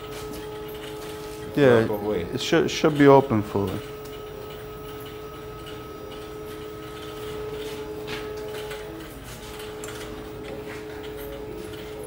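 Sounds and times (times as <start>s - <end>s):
machinery hum: 0.0s - 12.0s.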